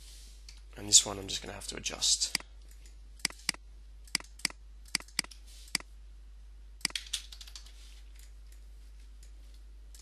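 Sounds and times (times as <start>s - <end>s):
computer mouse clicking: 2.3s - 5.9s, 6.8s - 10.0s.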